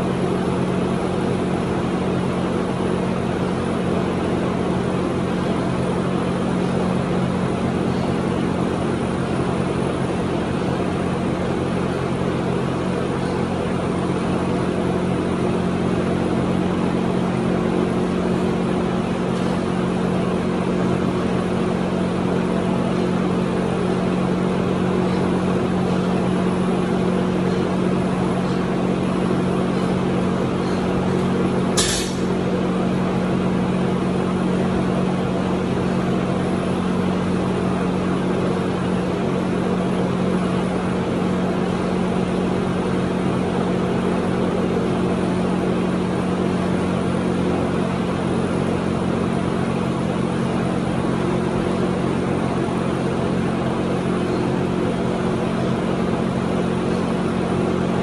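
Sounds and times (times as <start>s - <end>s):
machine drone: 0.0s - 58.0s
sharp click: 31.8s - 32.3s.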